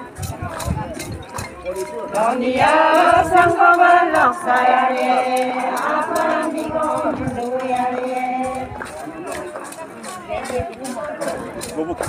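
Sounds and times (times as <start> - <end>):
women singing in chorus: 2.0 - 9.0.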